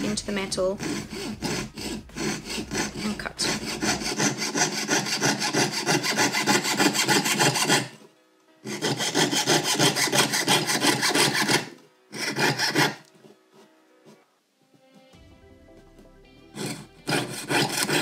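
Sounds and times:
saw rasping through metal sheet: 0.0s - 8.0s, 8.6s - 13.1s, 16.5s - 18.0s.

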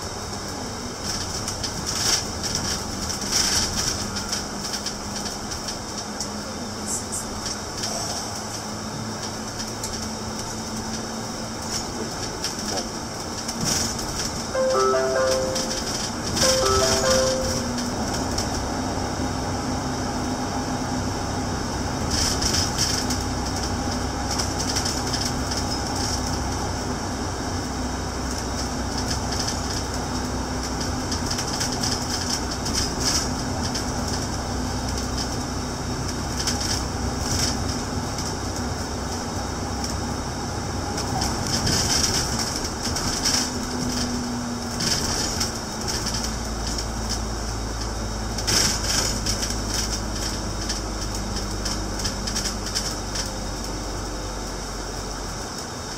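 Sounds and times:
bus engine drone: 0.0s - 55.9s
road rumble: 0.0s - 55.9s.

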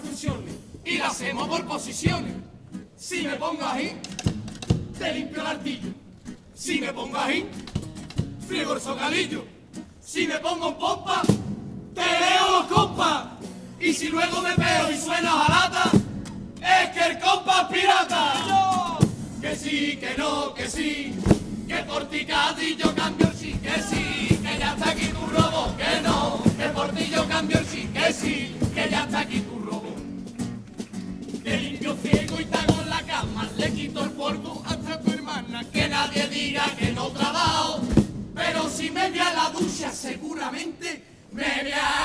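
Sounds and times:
men's chorus singing: 0.0s - 2.4s, 3.0s - 4.2s, 4.9s - 6.0s, 6.6s - 7.7s, 8.4s - 30.1s, 31.4s - 42.0s
drum beats: 4.0s - 5.1s, 7.6s - 8.5s, 11.1s - 17.2s, 18.0s - 40.0s.

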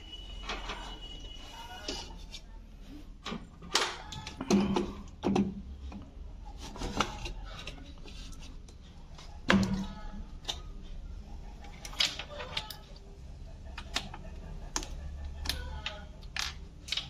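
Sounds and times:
hands clicking plastic control board: 13.8s - 17.0s.

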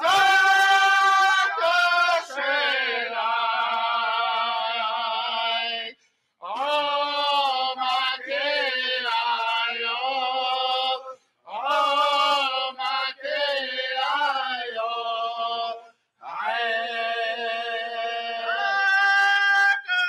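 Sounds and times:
group chanting in held notes: 0.0s - 3.8s.

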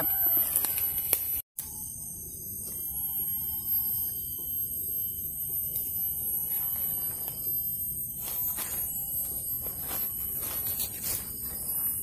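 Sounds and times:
cicadas droning: 0.0s - 12.0s
rustle in undergrowth: 6.4s - 12.0s.

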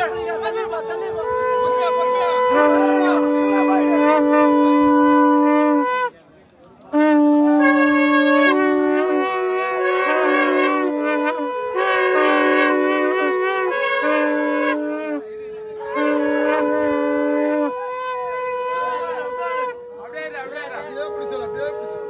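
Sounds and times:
horns blowing held notes: 0.0s - 22.0s.

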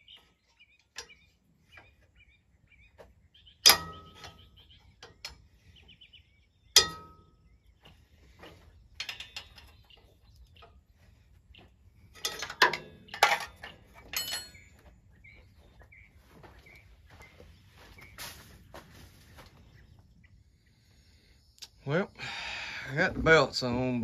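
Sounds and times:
birds chirping faintly: 0.0s - 24.0s
ringing metal clank: 3.6s - 5.4s, 6.7s - 7.5s, 12.2s - 14.8s
tools rattling clicks on metal: 9.0s - 9.8s, 12.2s - 14.6s.

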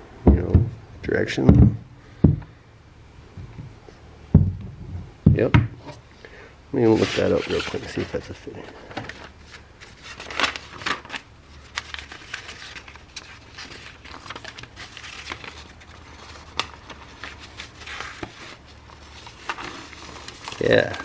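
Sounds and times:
paper pages rustling: 6.9s - 21.0s.

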